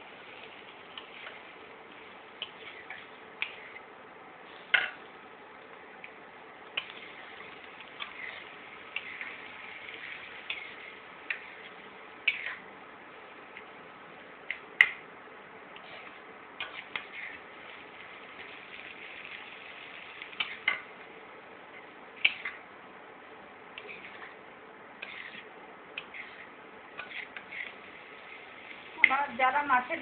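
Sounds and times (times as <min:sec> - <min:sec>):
spatula scraping metal wok: 0:02.4 - 0:03.8, 0:06.8 - 0:12.6, 0:15.8 - 0:20.8, 0:22.2 - 0:22.6, 0:23.8 - 0:24.4, 0:25.0 - 0:29.2.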